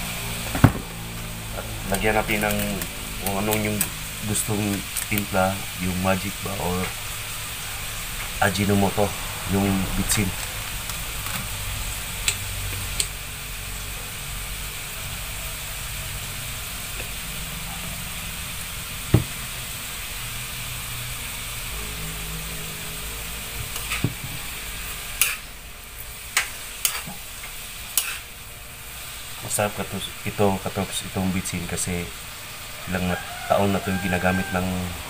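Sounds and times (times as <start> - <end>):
vegetables sizzling in pan: 0.0 - 35.0
metal ladle scraping pan: 21.8 - 28.4.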